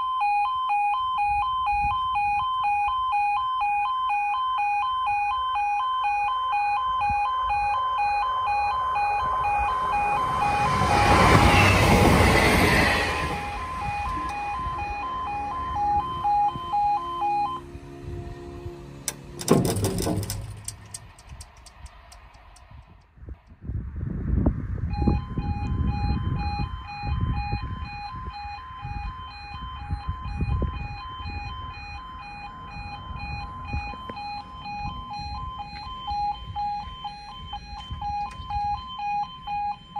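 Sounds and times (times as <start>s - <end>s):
two-tone crossing alarm: 0.0s - 22.3s, 24.9s - 39.9s
train rushing past: 10.2s - 14.0s.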